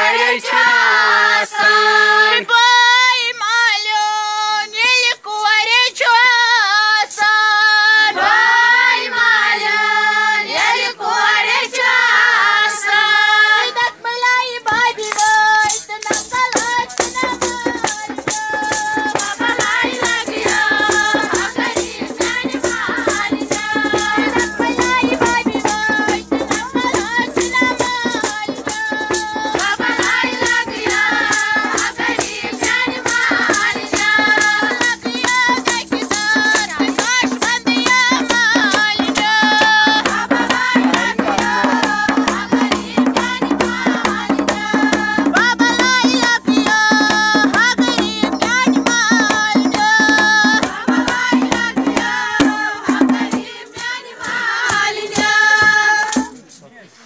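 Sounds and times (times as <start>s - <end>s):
child singing folk song: 0.0s - 56.4s
fast percussion beat: 14.6s - 56.7s.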